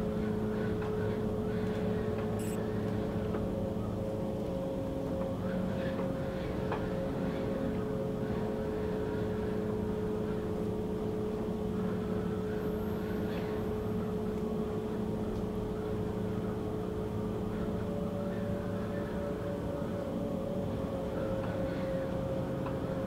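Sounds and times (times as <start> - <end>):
held drone tones: 2.4 - 2.6.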